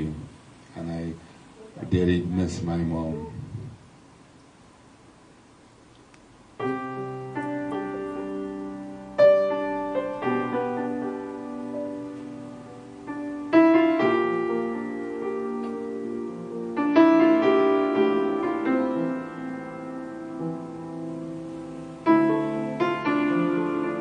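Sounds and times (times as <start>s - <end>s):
slow piano chords: 6.4s - 24.0s.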